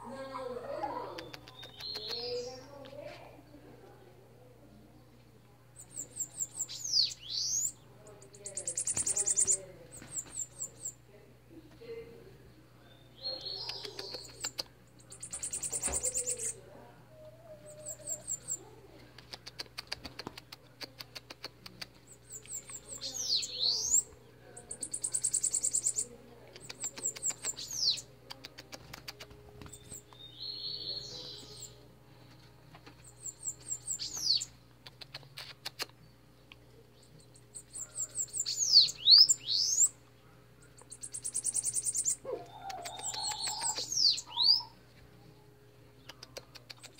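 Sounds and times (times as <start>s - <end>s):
birds singing buzzy trills: 0.9s - 2.8s, 5.7s - 11.1s, 12.6s - 16.6s, 17.4s - 18.7s, 22.0s - 32.2s, 32.9s - 46.9s
bird clicks: 1.2s - 2.3s, 13.6s - 16.3s, 19.2s - 22.8s, 25.2s - 30.3s, 34.1s - 36.6s, 42.0s - 44.0s, 46.0s - 46.9s.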